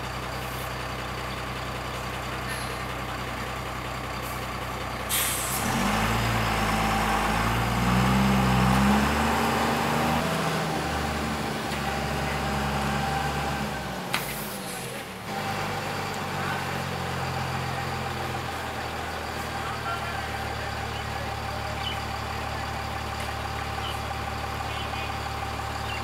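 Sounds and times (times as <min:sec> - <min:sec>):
diesel engine revving: 0:00.0 - 0:26.0
air brakes hissing: 0:05.1 - 0:05.8, 0:14.1 - 0:15.0.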